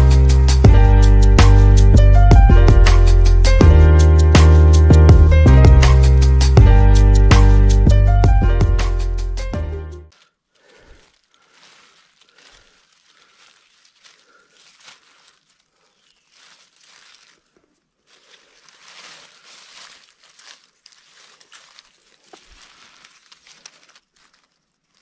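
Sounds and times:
dry leaves rustling and crackling: 10.2s - 25.0s.

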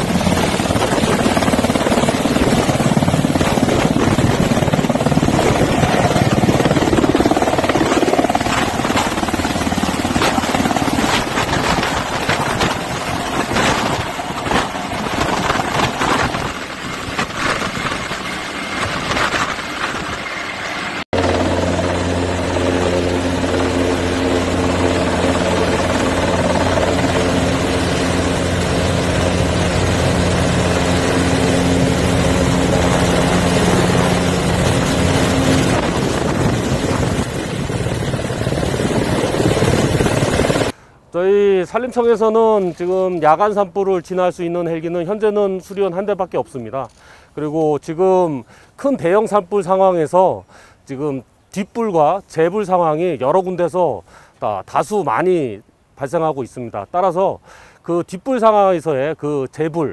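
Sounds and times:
helicopter rotor noise: 0.0s - 40.8s.

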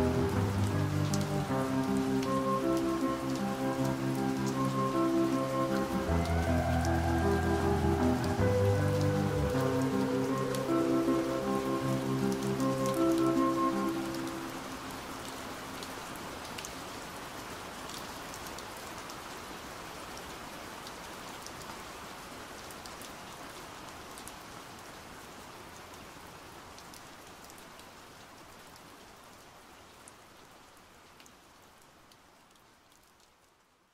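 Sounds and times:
rain hissing: 0.0s - 17.7s.

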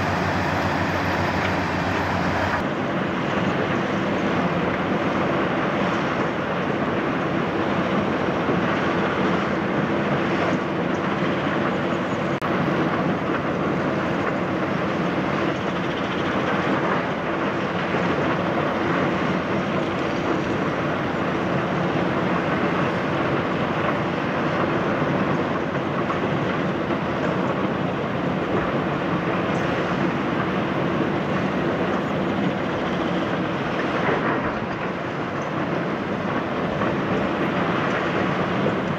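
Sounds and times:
excavator diesel engine droning: 0.0s - 4.5s.

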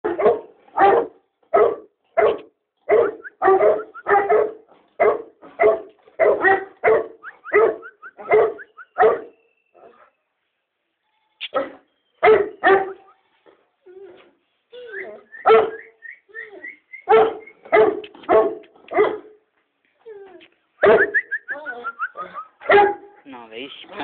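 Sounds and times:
large dog barking: 0.0s - 10.0s, 11.5s - 13.0s, 15.4s - 16.0s, 17.0s - 19.4s, 20.8s - 21.3s, 22.5s - 23.2s.

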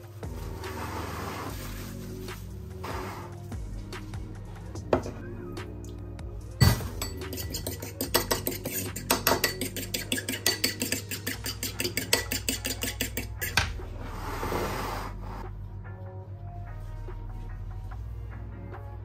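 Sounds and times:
fork beating against bowl: 6.6s - 13.7s.

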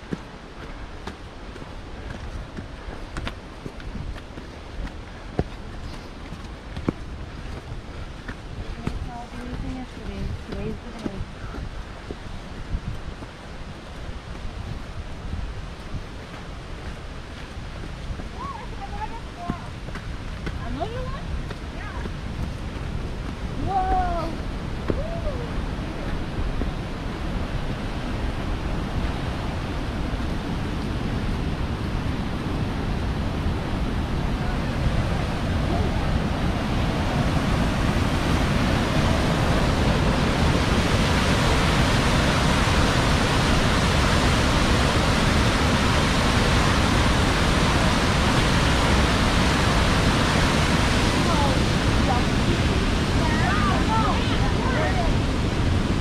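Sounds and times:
rushing mountain stream: 0.0s - 56.0s.

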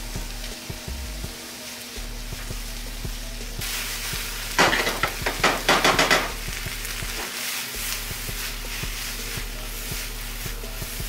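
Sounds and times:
onions sizzling in a skillet: 0.0s - 11.0s
spatula scraping a skillet: 7.0s - 11.0s.

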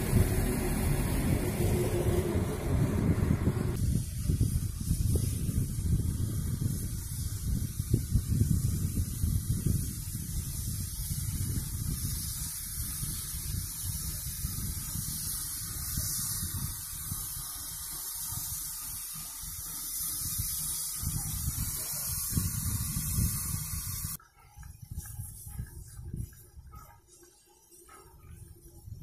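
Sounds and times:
low uneven rumble: 0.0s - 3.8s
steam locomotive hissing: 0.0s - 29.0s.

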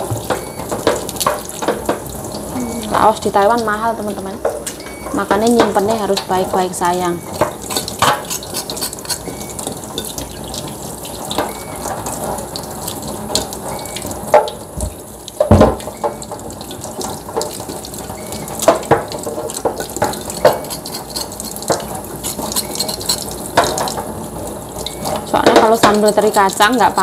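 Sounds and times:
tap water running into sink: 0.0s - 27.0s
knife scraping root: 7.7s - 9.3s, 20.6s - 23.3s.

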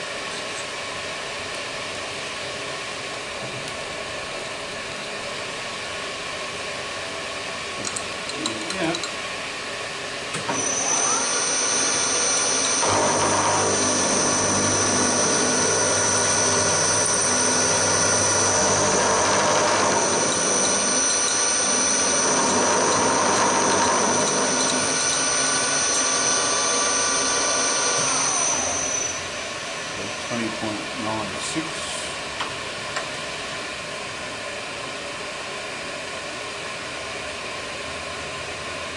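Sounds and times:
milling machine cutting metal: 10.4s - 30.4s
table feed motor whine: 10.4s - 30.7s.

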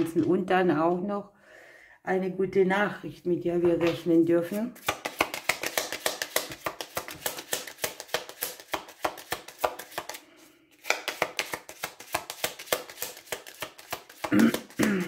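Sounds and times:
cards being shuffled: 3.8s - 14.8s.

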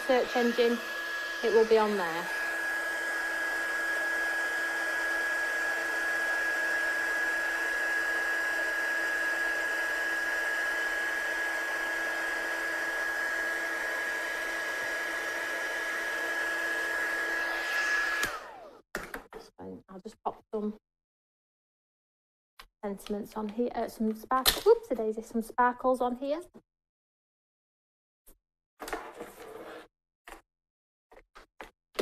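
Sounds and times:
heat gun blowing with high whine: 0.0s - 18.8s.

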